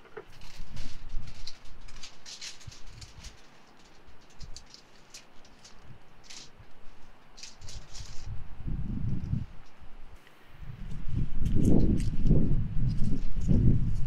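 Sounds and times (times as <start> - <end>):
wind rumble on microphone: 0.0 - 4.8, 5.4 - 14.0
aluminium foil crinkling: 0.0 - 8.4, 11.4 - 14.0.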